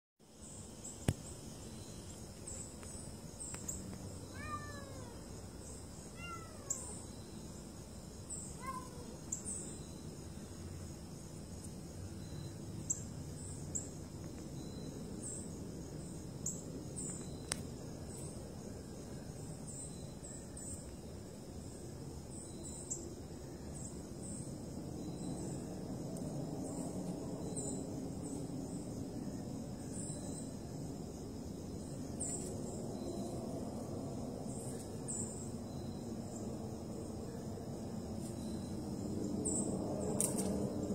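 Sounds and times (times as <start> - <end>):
high insect drone: 0.2 - 40.9
cat meowing: 4.3 - 5.2, 6.2 - 7.0, 8.6 - 9.2.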